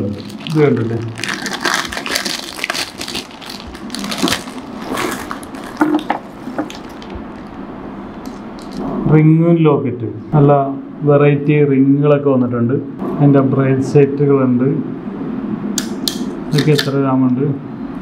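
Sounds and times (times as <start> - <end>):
plastic packets crinkling: 0.0 - 7.6.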